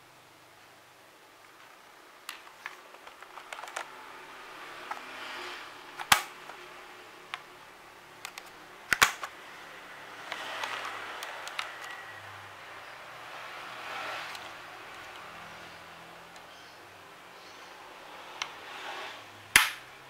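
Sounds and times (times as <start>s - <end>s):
rustling: 1.4s - 3.9s
sharp plastic snaps: 6.0s - 6.6s, 8.2s - 9.4s, 10.2s - 12.0s, 19.6s - 19.9s.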